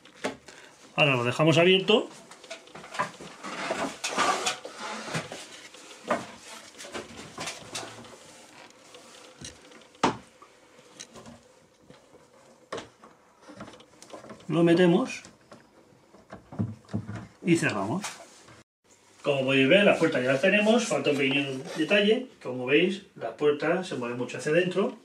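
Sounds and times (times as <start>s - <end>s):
rustling handling noise: 0.0s - 22.1s.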